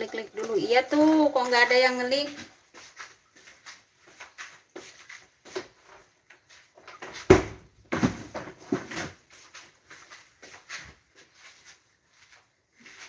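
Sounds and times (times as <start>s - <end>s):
knocks and clunks of kitchen items: 6.9s - 9.2s.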